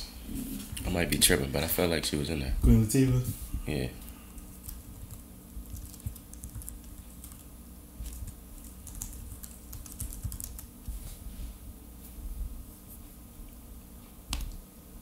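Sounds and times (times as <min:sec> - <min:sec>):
typing on a keyboard: 0:04.7 - 0:07.5, 0:08.6 - 0:10.7.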